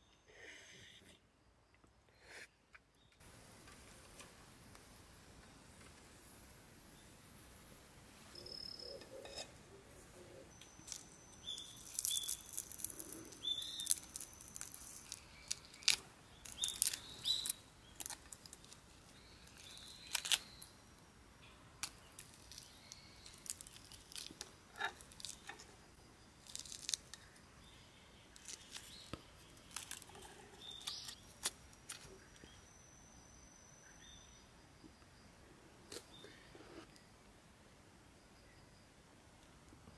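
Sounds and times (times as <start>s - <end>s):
prawn shell cracking: 10.9s - 20.7s, 21.8s - 25.8s, 26.4s - 27.4s, 28.4s - 32.1s.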